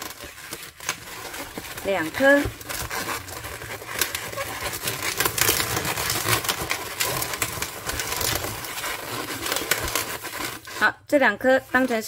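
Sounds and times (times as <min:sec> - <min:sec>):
balloons twisting and crackling: 0:00.0 - 0:12.0.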